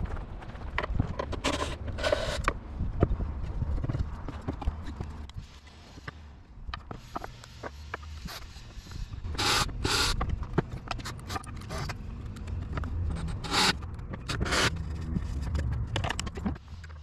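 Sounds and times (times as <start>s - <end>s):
cordless drill driving screw: 9.3s - 10.2s.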